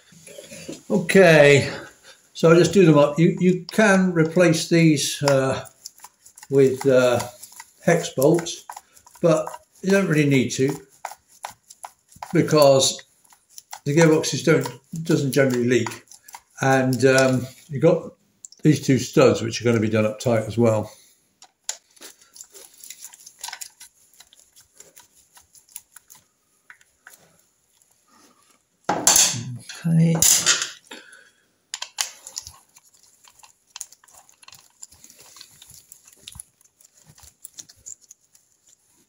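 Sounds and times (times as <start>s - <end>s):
screwdriver clicking on metal screws: 31.8s - 38.8s.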